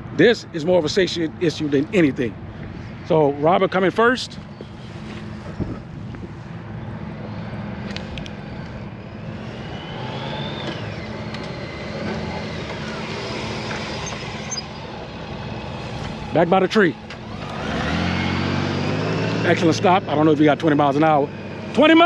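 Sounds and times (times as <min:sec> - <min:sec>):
motorcycle engine accelerating: 0:07.9 - 0:22.0.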